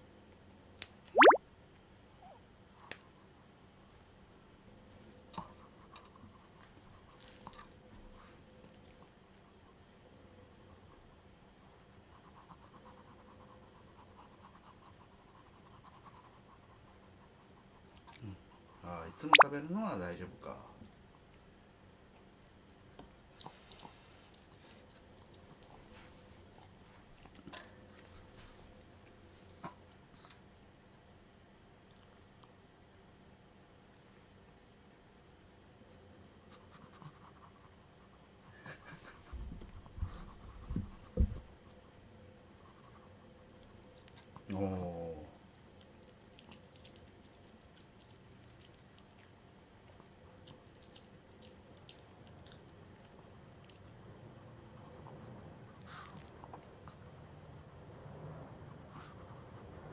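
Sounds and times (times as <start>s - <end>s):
dog chewing crunchy treats: 45.8s - 53.9s
dog chewing dry treat: 49.9s - 53.9s.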